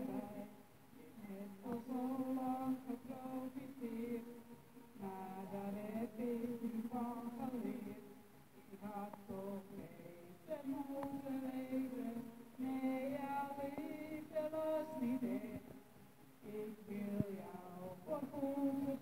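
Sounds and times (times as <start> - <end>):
woman singing: 8.8 - 15.7, 16.4 - 19.0.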